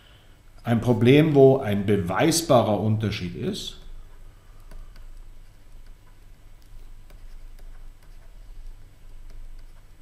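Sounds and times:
low steady hum: 0:00.0 - 0:10.0
stylus tapping on tablet: 0:04.6 - 0:10.0.

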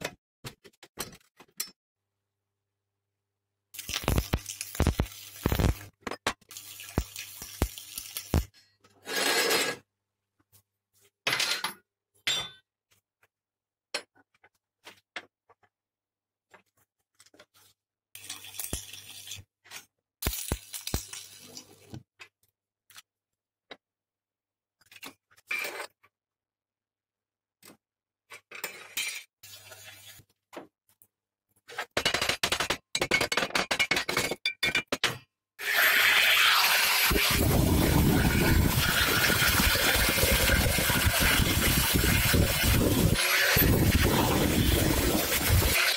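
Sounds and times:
welding arc crackling: 0:03.8 - 0:05.9, 0:06.7 - 0:08.5, 0:35.6 - 0:45.9.

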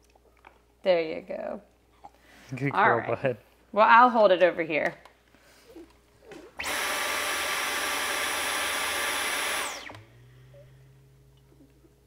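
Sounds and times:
vacuum motor winding down: 0:06.3 - 0:11.8
vacuum cleaner whining: 0:06.3 - 0:12.0.

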